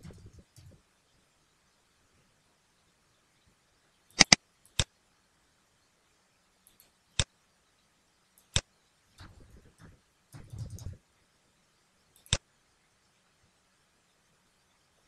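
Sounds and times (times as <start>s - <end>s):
rapid keyboard tapping: 0.0s - 0.8s, 4.2s - 4.4s, 9.2s - 11.0s
computer mouse clicking: 4.1s - 4.9s, 6.6s - 7.3s, 8.4s - 11.0s, 12.2s - 12.4s.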